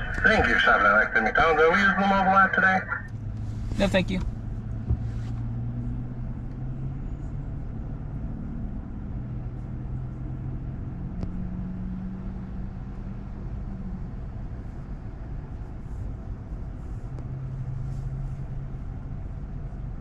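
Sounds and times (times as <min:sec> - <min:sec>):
car engine idling: 0:00.0 - 0:07.7.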